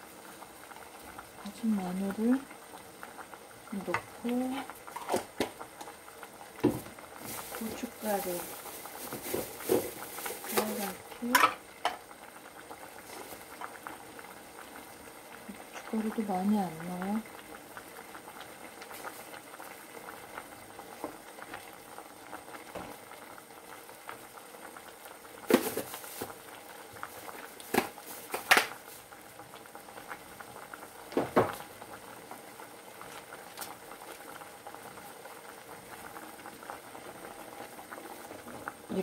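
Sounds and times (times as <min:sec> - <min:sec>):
stew bubbling and crackling: 0:00.0 - 0:39.0.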